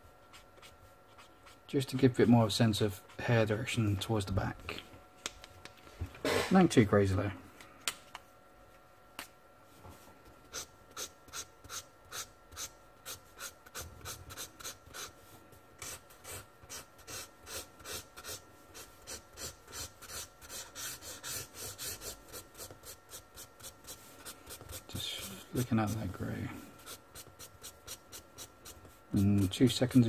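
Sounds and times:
marker scratching on paper: 10.5s - 15.1s, 15.8s - 26.1s.

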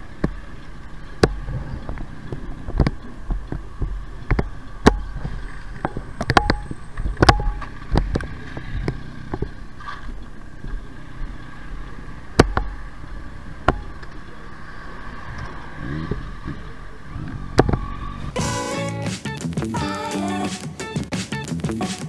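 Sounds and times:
motorcycle engine running: 0.0s - 18.7s
wind and road noise: 0.0s - 18.8s
sharp knocks: 1.2s - 8.2s, 12.4s - 12.8s, 13.6s - 14.0s
music: 18.4s - 22.0s.

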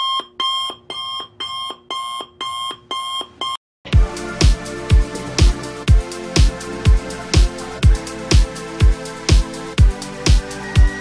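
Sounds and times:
electronic music with kick drum: 4.0s - 11.0s.

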